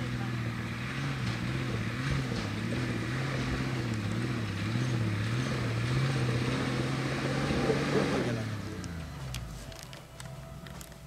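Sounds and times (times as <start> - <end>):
vehicle engine running at low revs: 0.0 - 11.0.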